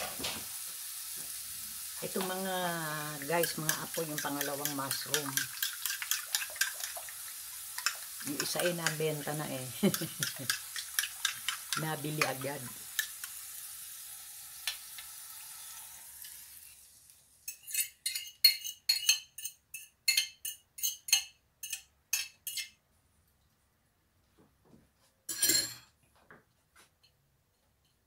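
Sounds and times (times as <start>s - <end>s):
faint sizzle from pan: 0.0s - 17.7s
spoon scraping ceramic plate: 17.5s - 22.8s.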